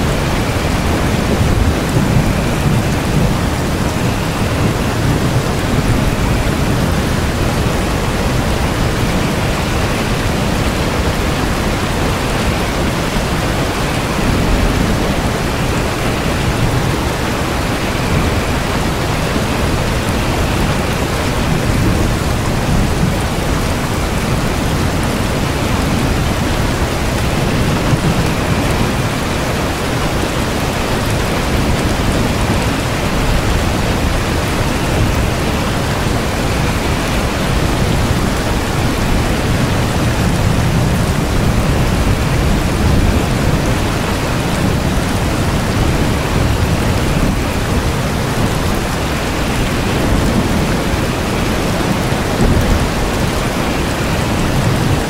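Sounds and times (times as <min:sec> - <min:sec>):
heavy rain: 0:00.0 - 0:55.0.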